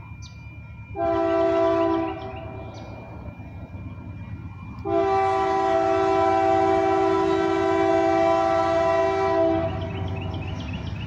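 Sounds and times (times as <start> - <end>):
locomotive air horn blast: 1.0 - 2.8, 4.8 - 10.0.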